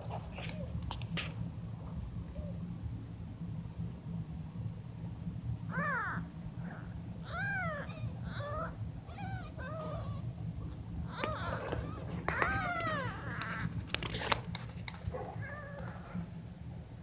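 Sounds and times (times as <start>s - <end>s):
steady low rumble: 0.0s - 17.0s
kittens mewing: 5.7s - 16.4s.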